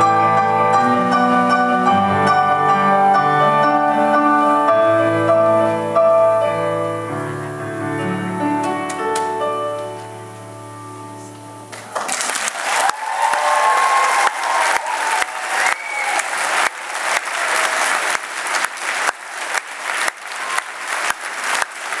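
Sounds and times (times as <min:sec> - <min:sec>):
piano music: 0:00.0 - 0:12.0
audience applause: 0:11.7 - 0:22.0.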